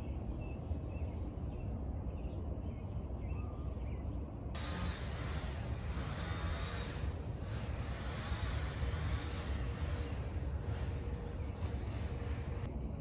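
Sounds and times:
birds chirping: 0.0s - 12.7s
wind rumbling on microphone: 0.0s - 13.0s
hissing wind noise: 4.6s - 13.0s.

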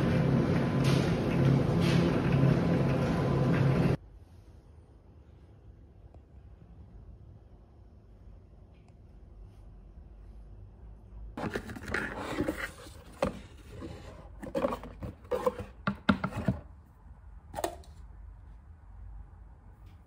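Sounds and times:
cardboard packaging rustling: 11.4s - 15.8s.

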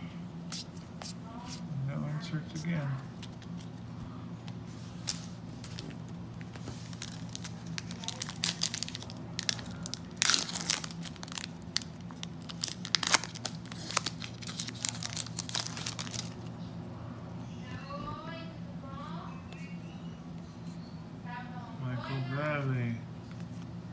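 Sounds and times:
steady low hum: 0.0s - 23.9s
foil wrapper crinkling: 5.0s - 16.5s.

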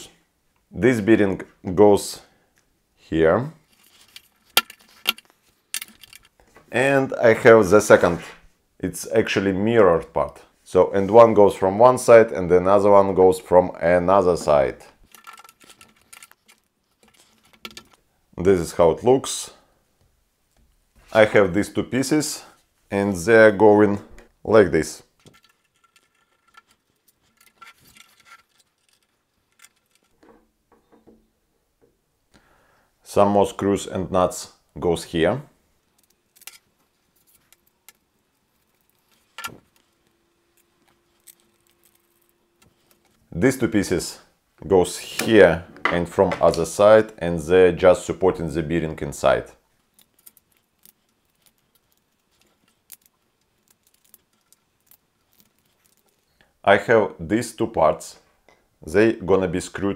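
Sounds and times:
plastic parts clicking: 3.8s - 6.4s, 15.0s - 18.0s, 25.2s - 31.1s, 49.9s - 56.4s
soft rustling: 49.2s - 56.6s.

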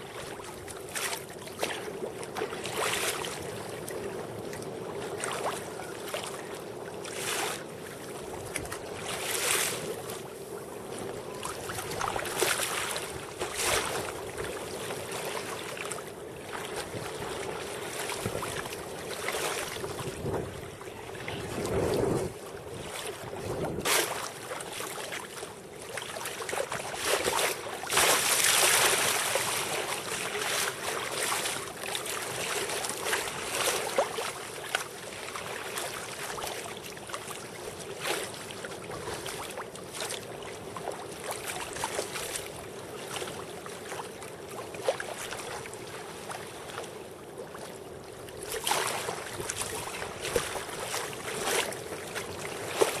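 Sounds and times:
sea water splashing against kayak: 0.0s - 53.0s.

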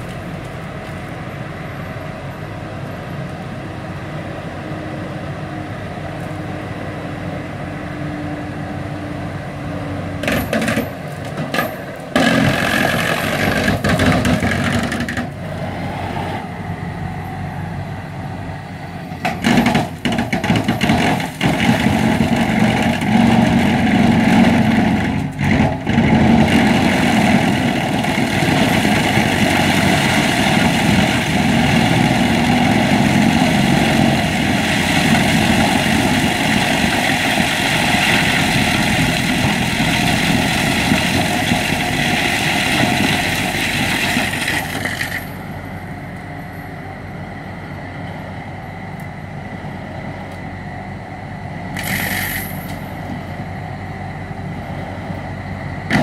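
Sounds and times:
tractor engine running: 8.8s - 56.0s
rocks cracking and banging: 10.2s - 15.3s, 19.2s - 45.2s.

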